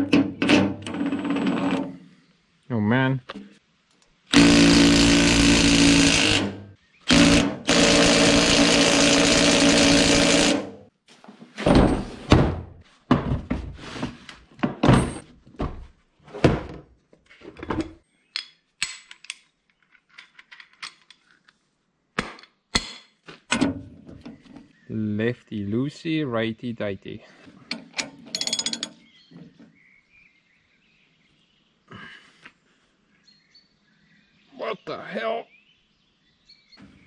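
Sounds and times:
power tool running: 4.3 - 10.8
knocks and clatters: 11.6 - 21.3.

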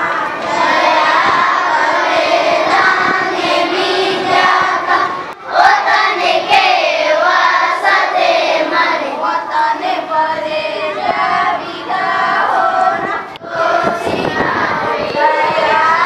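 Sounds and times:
children singing in unison: 0.0 - 16.0.

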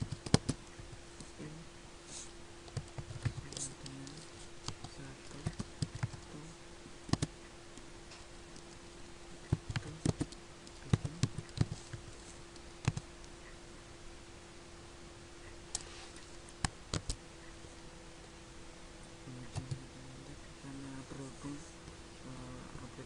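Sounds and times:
keyboard typing clicks: 0.0 - 0.8, 2.7 - 6.3, 7.1 - 7.3, 9.4 - 12.0, 12.8 - 13.0, 16.6 - 17.2
steady low hum: 0.0 - 23.0.

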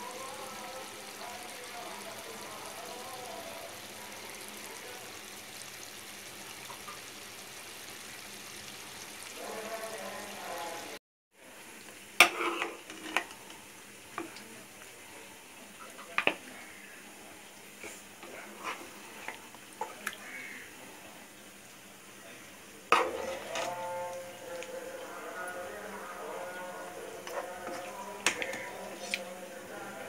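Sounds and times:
curry sizzling and bubbling: 0.0 - 30.0
metal spatula scraping a pan: 12.2 - 13.6, 17.8 - 19.4, 22.9 - 24.3.

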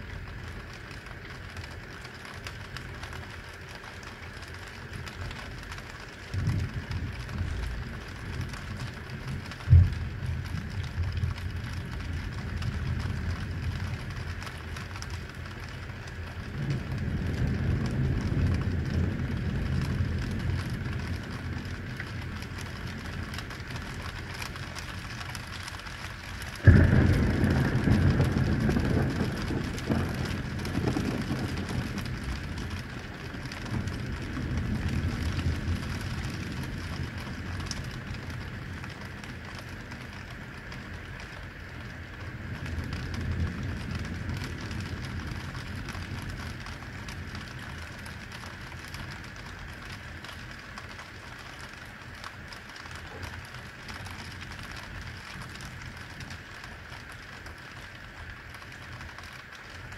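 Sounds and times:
heavy rain: 0.0 - 59.9
rolling thunder: 5.3 - 41.4, 42.1 - 50.5
sharp thunderclap: 26.4 - 38.9.

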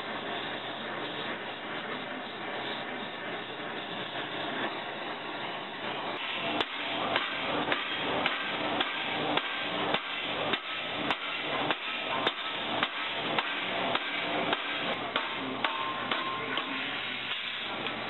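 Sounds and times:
hammer striking metal blade: 6.6 - 17.6.

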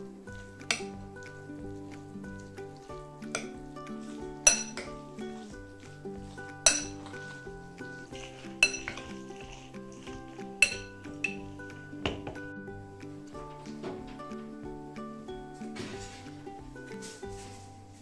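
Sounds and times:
soft background music: 0.0 - 18.0
fork clinking against glass bowl: 0.6 - 3.6, 4.4 - 5.0, 6.4 - 12.4.

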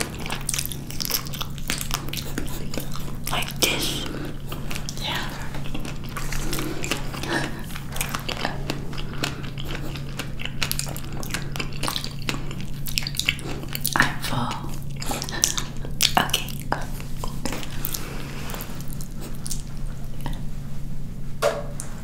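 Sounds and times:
chewing soft fruit: 0.0 - 20.8.

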